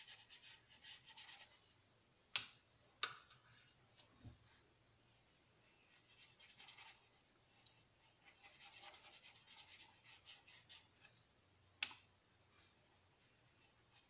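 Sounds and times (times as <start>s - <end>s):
pencil scratching on paper: 0.0s - 1.6s, 6.0s - 7.0s, 8.0s - 11.0s.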